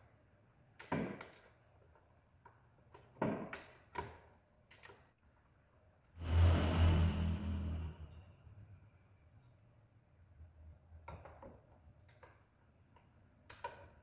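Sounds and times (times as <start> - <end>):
low drone with hiss: 6.2 - 8.3.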